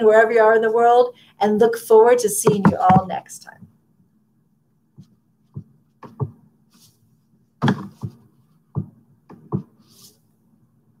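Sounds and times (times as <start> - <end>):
irregular knocks and clicks: 5.0 - 6.4, 7.6 - 9.8.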